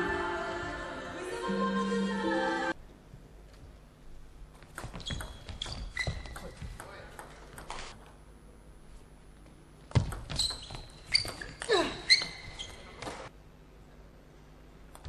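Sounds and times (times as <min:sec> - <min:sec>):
short falling squeak: 0:10.3 - 0:13.2.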